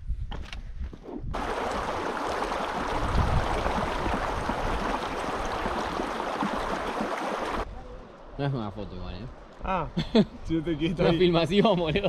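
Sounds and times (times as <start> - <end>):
stream rushing over rocks: 1.4 - 7.7.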